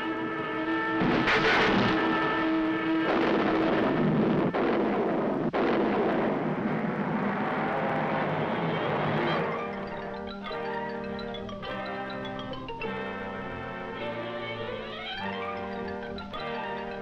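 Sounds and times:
loud rushing exhaust: 0:01.0 - 0:09.4
held many-toned sound: 0:09.3 - 0:17.0.

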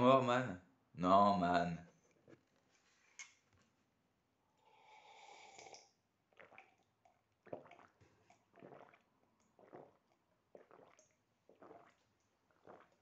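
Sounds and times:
man slurping coffee: 0:04.6 - 0:13.0
man gulping: 0:04.7 - 0:13.0.

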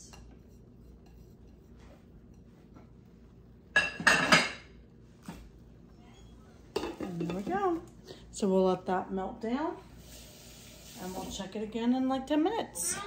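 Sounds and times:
dishes clinking: 0:03.7 - 0:04.8, 0:06.7 - 0:07.6.

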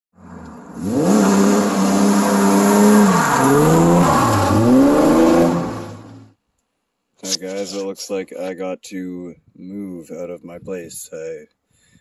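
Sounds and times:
car engine revving past: 0:00.2 - 0:06.3.

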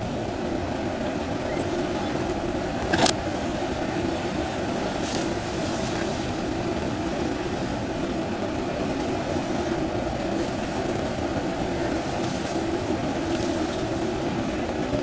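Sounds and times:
diesel engine running under load: 0:00.0 - 0:15.0
hydraulic arm digging mud: 0:02.8 - 0:03.2.

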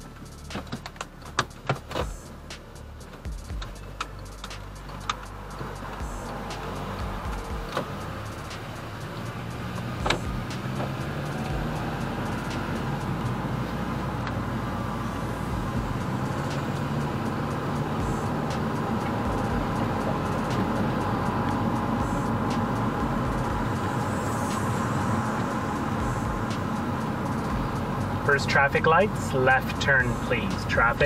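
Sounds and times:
car engine and road noise: 0:00.0 - 0:31.0.

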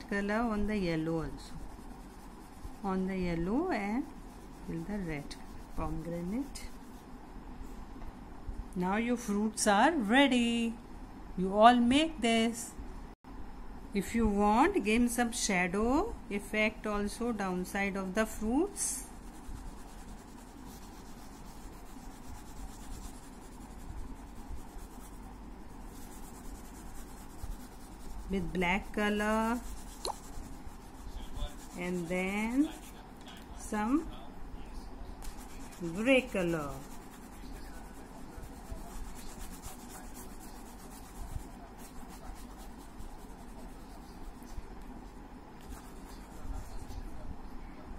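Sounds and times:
crayon scratching on paper: 0:00.1 - 0:07.1, 0:18.2 - 0:33.0, 0:35.2 - 0:44.6, 0:45.6 - 0:47.1.

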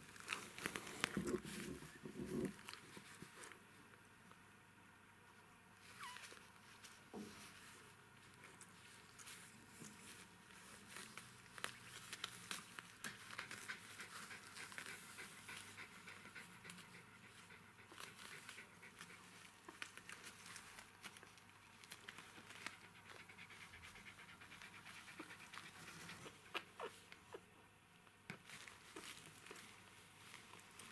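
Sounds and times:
small clicks and rustles: 0:00.0 - 0:04.4, 0:05.8 - 0:27.3, 0:28.0 - 0:30.9
dog panting: 0:13.1 - 0:20.5, 0:22.0 - 0:26.9.

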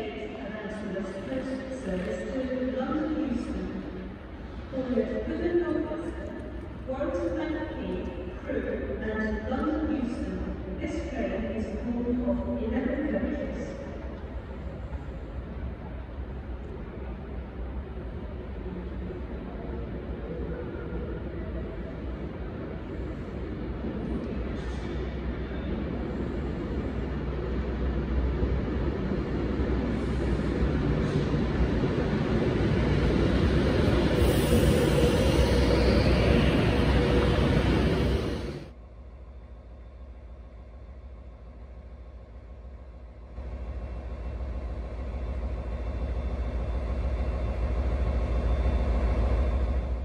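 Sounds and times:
diesel locomotive engine rumbling: 0:00.0 - 0:50.0.

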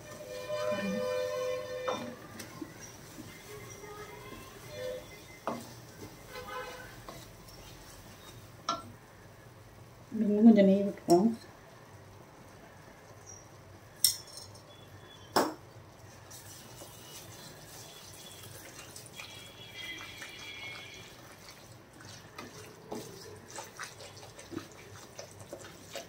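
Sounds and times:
wooden spatula scraping pan: 0:00.0 - 0:08.5, 0:16.7 - 0:26.0
flour sizzling in hot fat: 0:00.0 - 0:08.7, 0:16.0 - 0:26.0.

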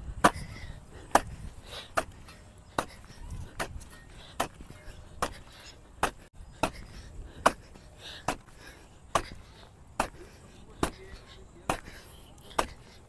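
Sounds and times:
hoe blade thudding into soil: 0:10.0 - 0:12.9.

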